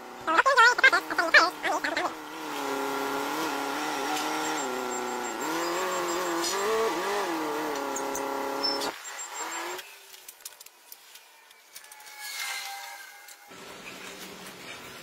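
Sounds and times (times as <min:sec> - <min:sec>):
forklift engine revving: 0:00.0 - 0:09.8.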